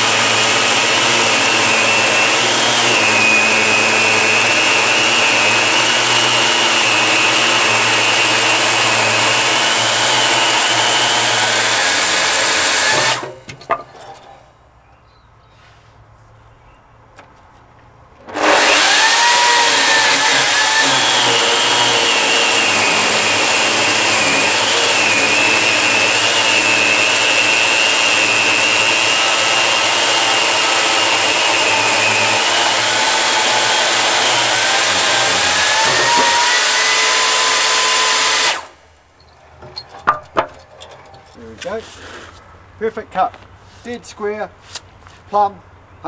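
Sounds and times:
power saw cutting wood: 0.0 - 13.4, 18.3 - 38.8
small knocks: 13.0 - 14.3, 39.6 - 41.7.

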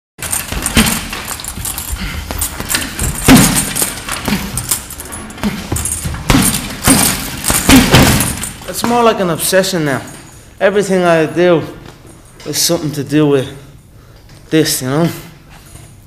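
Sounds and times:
chains jingling: 0.2 - 8.8
punches hitting punching bag: 0.2 - 9.2.

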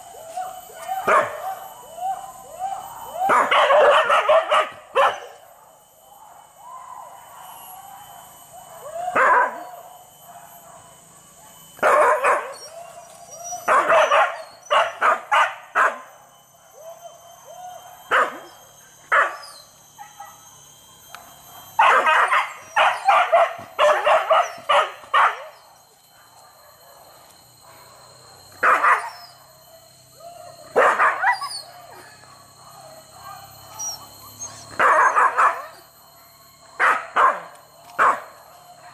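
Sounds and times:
dogs barking: 1.0 - 1.6, 3.3 - 5.4, 8.6 - 9.7, 11.8 - 12.7, 13.6 - 16.1, 18.0 - 18.5, 19.1 - 20.4, 21.6 - 25.6, 28.6 - 29.7, 30.7 - 31.6, 32.6 - 35.9, 36.8 - 38.9.

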